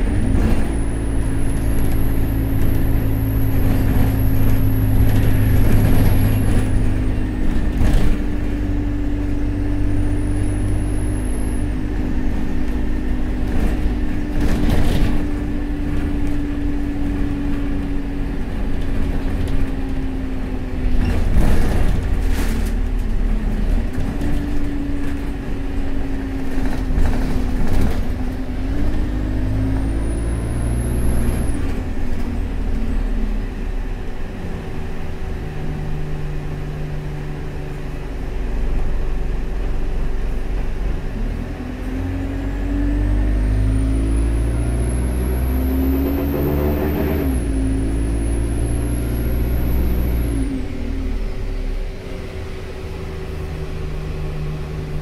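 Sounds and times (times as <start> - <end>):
bus body rattling: 0.0 - 41.2
bus engine drone: 0.0 - 55.0
road noise: 0.0 - 55.0.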